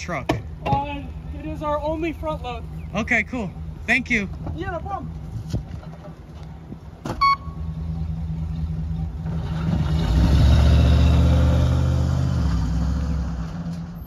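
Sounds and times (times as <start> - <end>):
garbage truck engine accelerating: 7.6 - 14.0.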